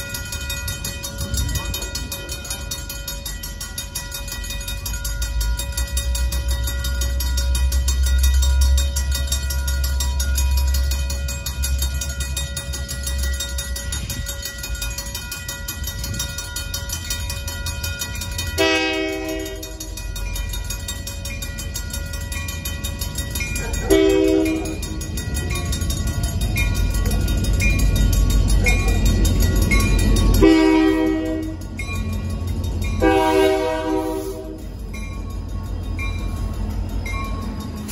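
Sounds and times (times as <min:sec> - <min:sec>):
crossing bells ringing: 0:00.0 - 0:37.9
locomotive horn blasts: 0:18.6 - 0:19.9, 0:23.9 - 0:24.8, 0:30.4 - 0:31.6, 0:33.0 - 0:34.6.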